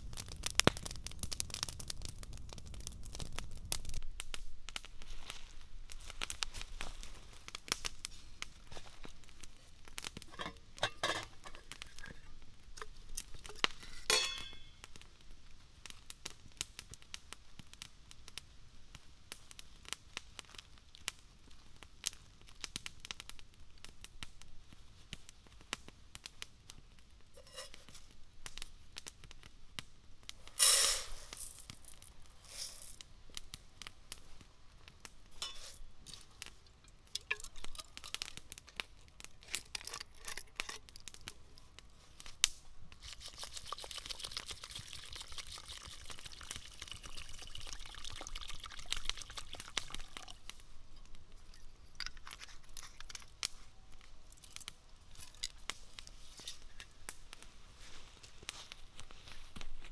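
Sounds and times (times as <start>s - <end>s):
metal lid and pot clinking: 10.3s - 12.9s, 13.5s - 14.8s, 35.4s - 35.8s, 37.2s - 38.3s
dry grains poured into pot: 30.5s - 33.0s, 43.0s - 50.5s.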